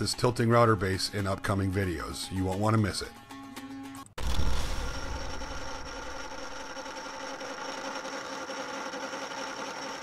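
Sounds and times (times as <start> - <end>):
thin high whine: 4.2 - 8.0
machine humming: 4.2 - 10.0.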